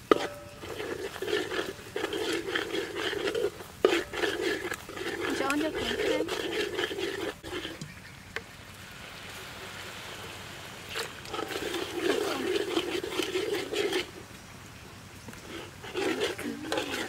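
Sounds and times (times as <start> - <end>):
metal ladle stirring: 0.0 - 8.0, 10.9 - 14.3, 15.3 - 17.0
oil sizzling in a wok: 9.0 - 14.0.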